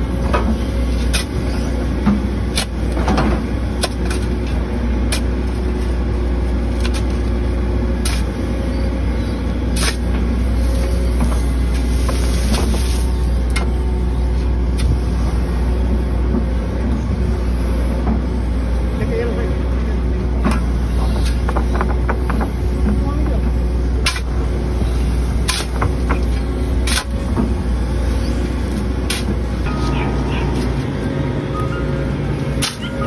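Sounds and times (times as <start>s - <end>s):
heavy machinery engine running: 0.0s - 33.0s
shovels scraping dirt: 0.8s - 1.8s, 6.6s - 7.3s, 8.0s - 8.4s, 9.7s - 13.2s, 24.0s - 24.3s, 25.4s - 27.3s, 28.1s - 31.0s, 31.6s - 33.0s.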